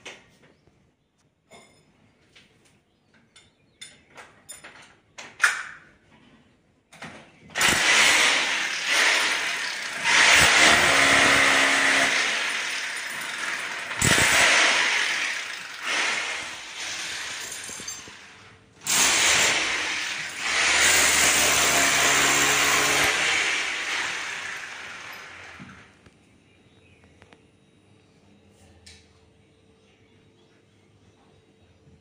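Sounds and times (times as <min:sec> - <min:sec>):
electric drill boring into wall: 0:07.6 - 0:25.9.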